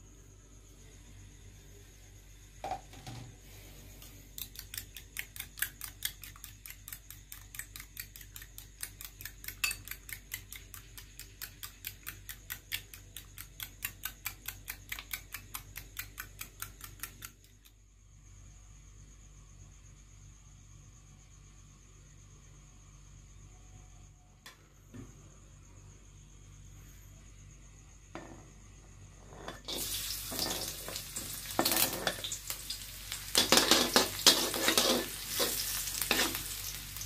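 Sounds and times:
spoon beating eggs in glass bowl: 4.4 - 17.3.

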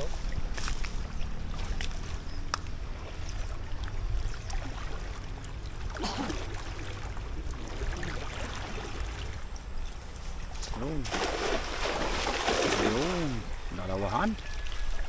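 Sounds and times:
water sloshing and trickling: 0.0 - 15.0
water splash: 10.9 - 13.6.

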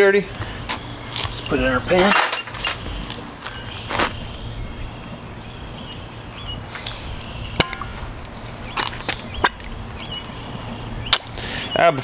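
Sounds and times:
metal parts clicking: 1.4 - 2.9.

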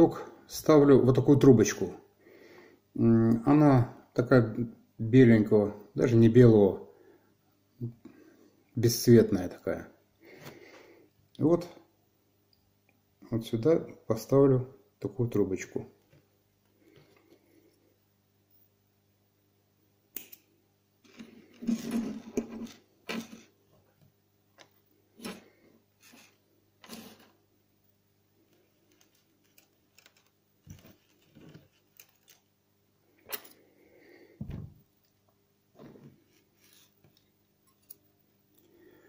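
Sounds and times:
fishing tackle clicks and rustles: 28.7 - 32.5.

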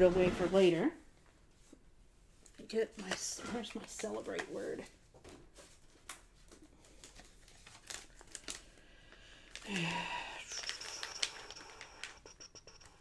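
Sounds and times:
paper rustling and crinkling: 2.5 - 8.8, 10.4 - 13.0.

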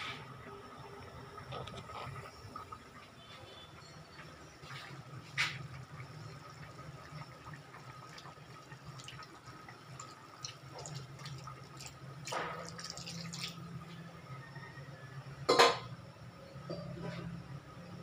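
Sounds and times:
liquid dripping and splashing into pot: 7.1 - 13.6.

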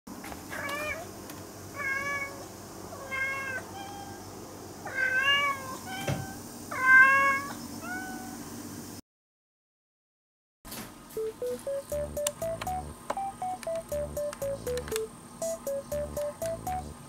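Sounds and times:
cats meowing: 0.5 - 1.1, 1.8 - 4.2, 4.8 - 8.4.

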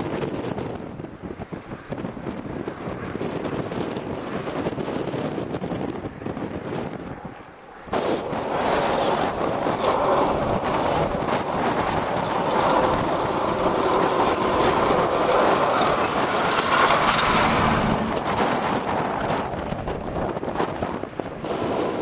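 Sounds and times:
snowplow truck driving past: 8.0 - 21.0.

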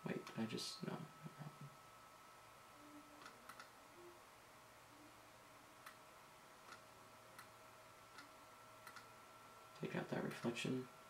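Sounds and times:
faint room hum: 0.0 - 11.0
computer mouse clicks: 3.2 - 3.7, 6.6 - 7.5, 8.1 - 9.1.

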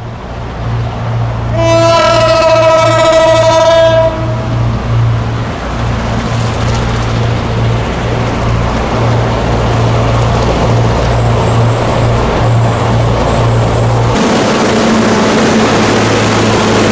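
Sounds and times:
diesel locomotive engines throbbing: 0.0 - 16.9
wheel and rail noise: 0.0 - 16.9
train horn blast: 1.5 - 4.7.

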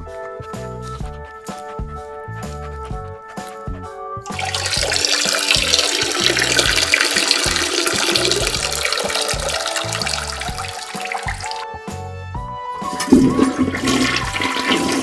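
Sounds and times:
background music with steady beat: 0.0 - 15.0.

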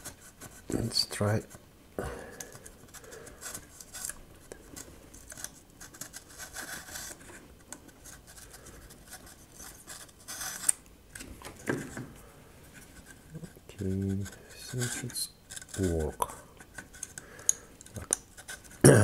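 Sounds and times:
razor blade scraping wood: 4.8 - 10.8, 12.8 - 18.8.

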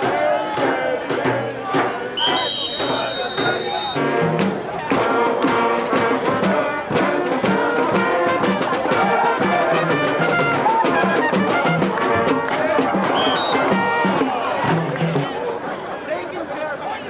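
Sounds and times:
steady drum beat: 0.0 - 15.4
trumpets and trombones playing: 2.2 - 15.3.

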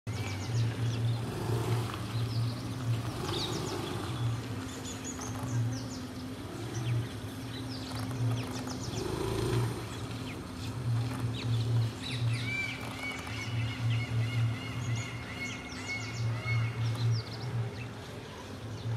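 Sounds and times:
small birds chirping: 0.1 - 18.9.

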